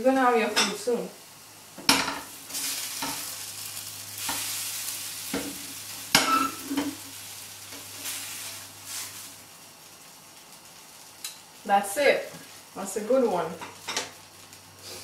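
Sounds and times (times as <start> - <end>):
pancake sizzling in a frying pan: 0.0 - 15.0
spatula scraping and knocking pan: 5.3 - 7.0.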